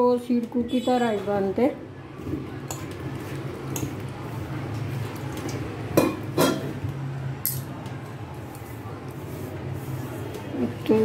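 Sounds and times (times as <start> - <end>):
hands mixing flour in bowl: 8.3 - 11.0.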